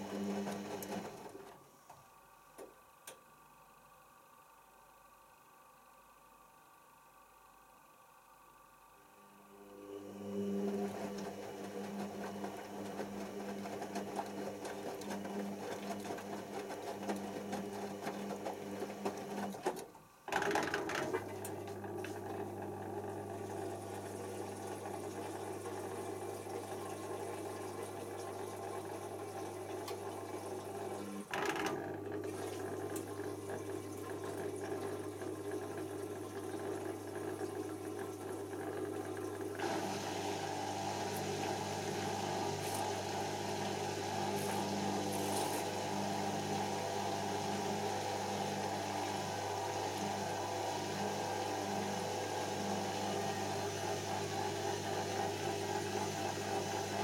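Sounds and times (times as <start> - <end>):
washing machine drum humming: 0.0 - 1.6, 9.8 - 57.0.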